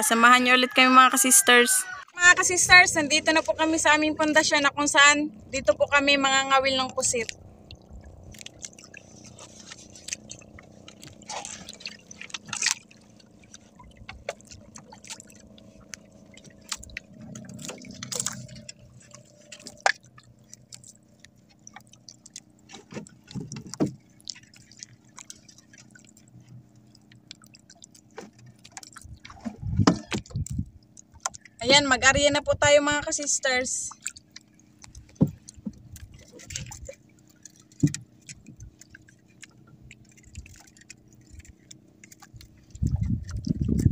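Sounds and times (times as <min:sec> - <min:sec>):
water lapping against boat: 0:00.0 - 0:43.9.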